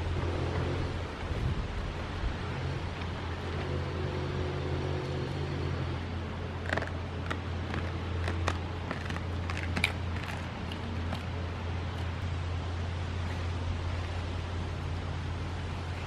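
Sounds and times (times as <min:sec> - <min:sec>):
goats crunching feed: 0:06.6 - 0:12.2.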